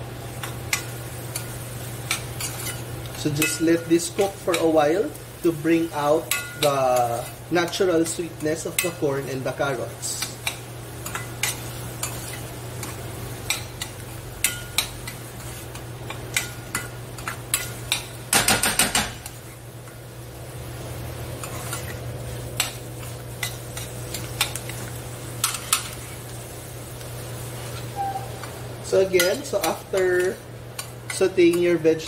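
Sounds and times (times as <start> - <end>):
metal spoon clinking in pan: 6.3 - 6.7, 29.1 - 31.7.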